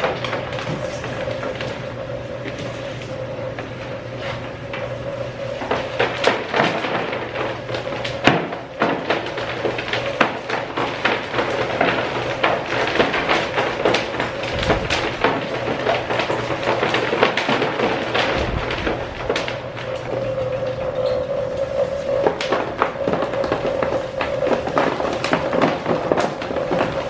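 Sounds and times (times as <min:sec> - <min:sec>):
electric motor hum: 0:14.0 - 0:17.2, 0:17.8 - 0:25.6.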